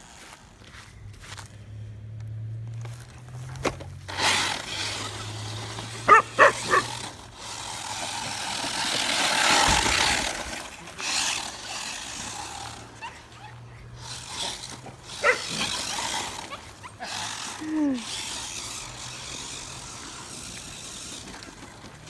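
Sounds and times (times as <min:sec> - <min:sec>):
rc car rushing over grass: 0:02.6 - 0:22.0
dog barking: 0:06.1 - 0:06.9, 0:15.2 - 0:15.5.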